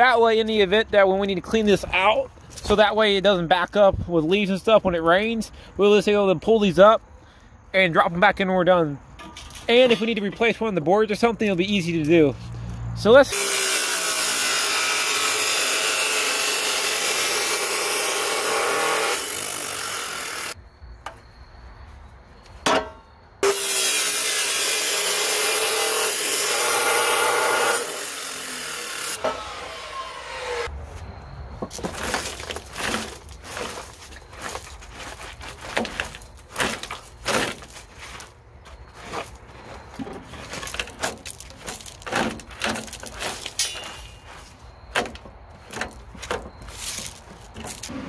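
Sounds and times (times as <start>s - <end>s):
power saw cutting wood: 13.3s - 20.6s, 23.4s - 30.7s
knocks and scrapes of boards: 31.6s - 48.0s.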